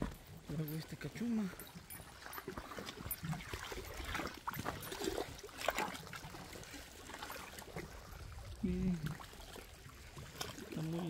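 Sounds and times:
water lapping at shore: 0.0s - 11.0s.

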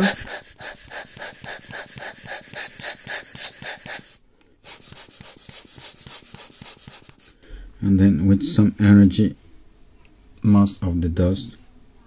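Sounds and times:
air blower puffing: 0.0s - 7.4s.

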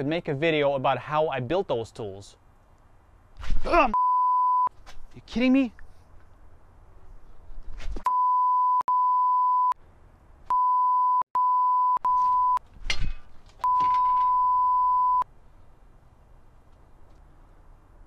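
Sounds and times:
censor bleep tone: 4.0s - 4.7s, 8.1s - 9.8s, 10.5s - 12.6s, 13.6s - 15.2s.

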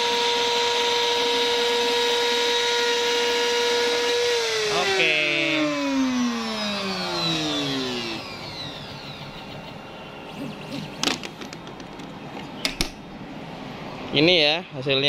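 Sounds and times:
router spindle whine spinning down: 0.0s - 11.2s.

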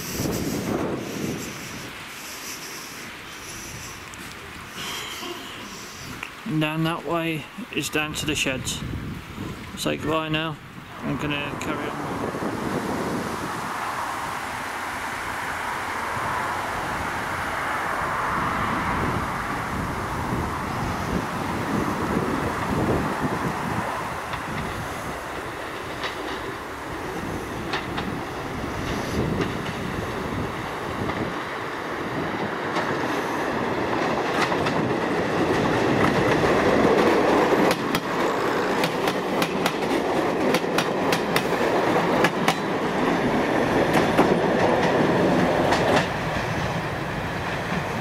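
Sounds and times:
diesel train passing: 0.0s - 48.0s
wheels clicking over rail joints: 21.6s - 48.0s.

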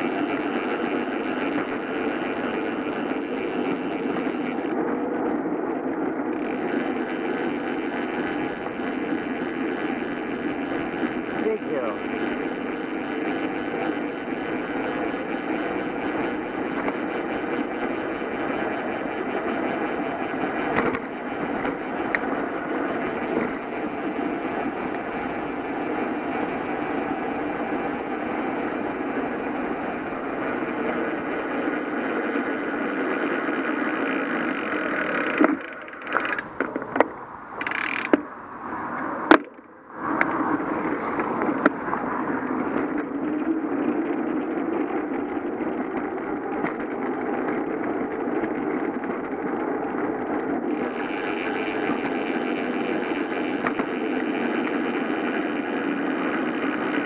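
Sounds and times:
wind and tyre rush: 0.0s - 57.0s
sharp clicks: 35.2s - 38.3s.

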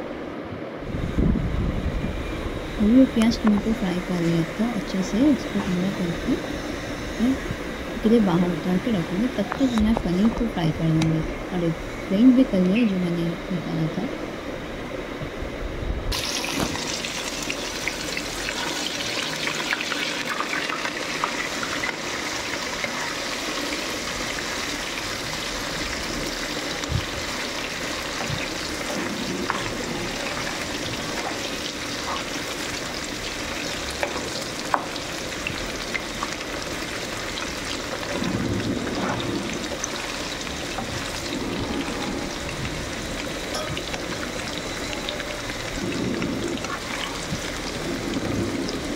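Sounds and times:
paneer sizzling in hot oil: 16.1s - 48.9s.

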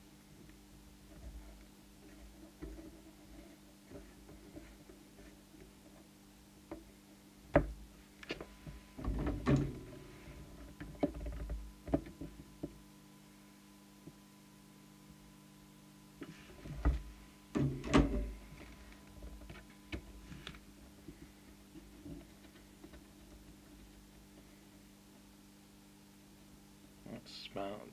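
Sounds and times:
steady low hum: 0.0s - 27.9s.

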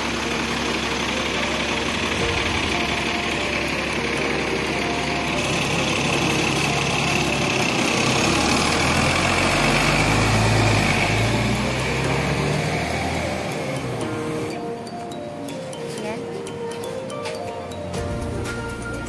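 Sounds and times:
bus diesel engine passing: 0.0s - 19.0s
city street noise: 0.0s - 19.0s.

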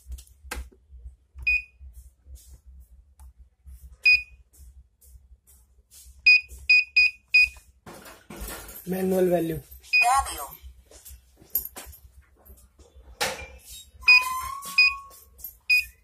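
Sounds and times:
short high keypad beeps: 14.1s - 15.1s.

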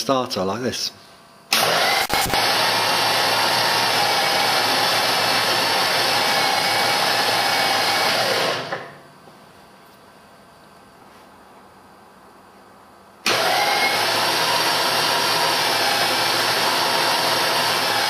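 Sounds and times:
engine cranking on starter: 1.5s - 8.8s, 13.2s - 18.0s.

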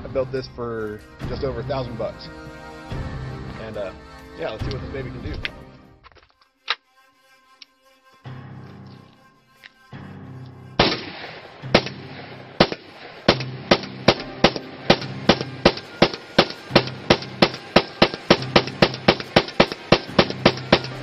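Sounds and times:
pistol gunshots: 10.8s - 21.0s.

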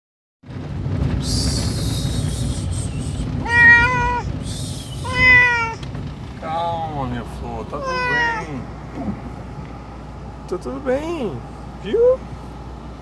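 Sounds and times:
low rumble: 0.4s - 13.0s
cat meowing: 3.4s - 4.3s, 5.0s - 5.8s, 7.8s - 8.6s.

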